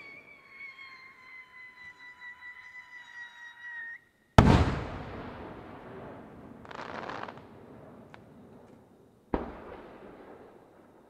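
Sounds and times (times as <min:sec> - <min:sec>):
fireworks shell booming: 0:04.4 - 0:08.4.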